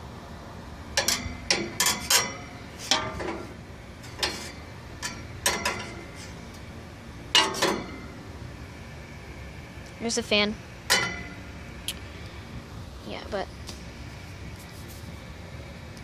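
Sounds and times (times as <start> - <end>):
screwdriver clinking on metal fan: 0.9 - 6.7, 10.9 - 11.4.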